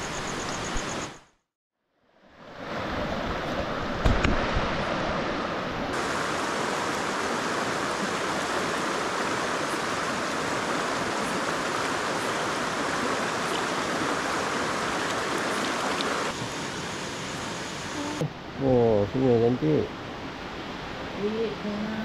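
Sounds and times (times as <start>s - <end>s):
river water rushing: 2.3s - 18.2s.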